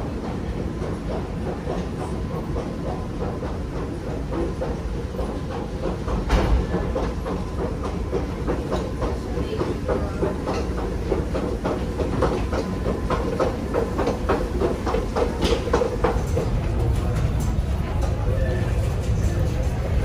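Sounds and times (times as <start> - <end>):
escalator mechanical hum: 0.0 - 20.0
escalator steps clicking: 0.1 - 20.0.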